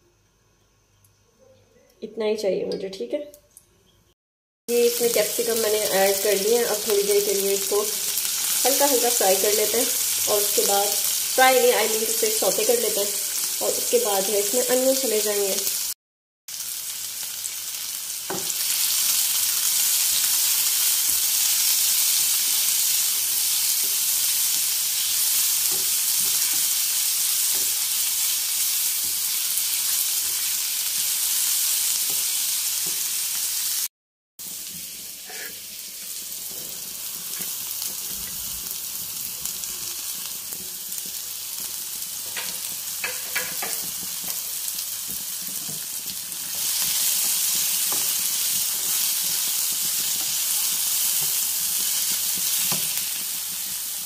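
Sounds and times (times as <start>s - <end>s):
vegetables sizzling in oil: 4.7s - 54.0s
spatula scraping a pan: 35.2s - 35.7s.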